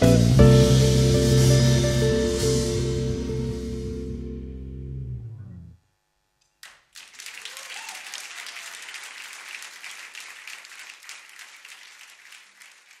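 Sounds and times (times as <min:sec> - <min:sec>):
audience applause: 0:06.6 - 0:13.0.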